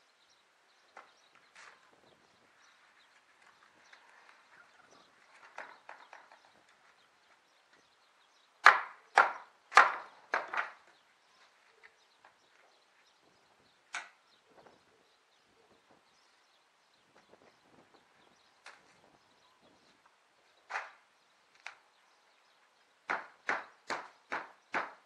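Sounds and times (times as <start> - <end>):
knocks on wooden planks: 8.6 - 10.9, 23.1 - 25.0.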